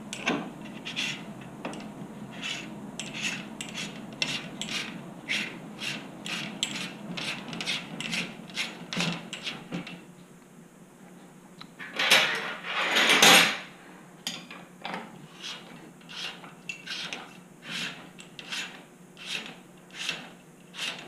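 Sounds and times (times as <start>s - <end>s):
hand rubbing on steel tube: 2.3s - 8.8s.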